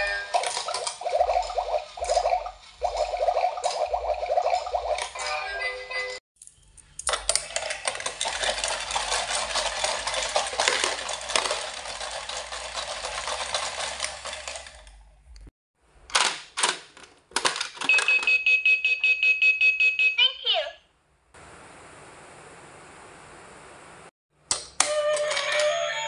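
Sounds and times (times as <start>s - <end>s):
plastic clacks: 7.0s - 12.3s, 16.1s - 18.3s
plastic clattering: 7.0s - 14.8s, 16.1s - 18.1s.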